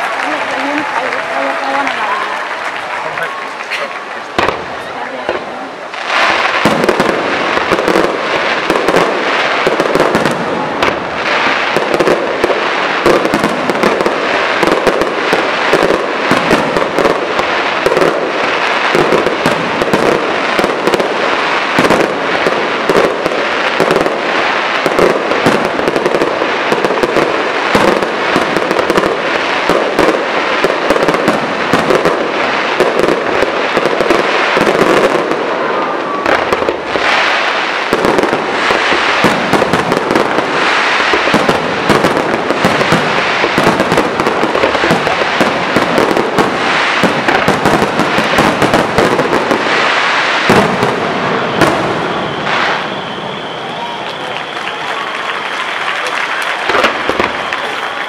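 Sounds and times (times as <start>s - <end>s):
fireworks crackling overhead: 0.0s - 58.0s
fireworks pops and bangs: 0.0s - 58.0s.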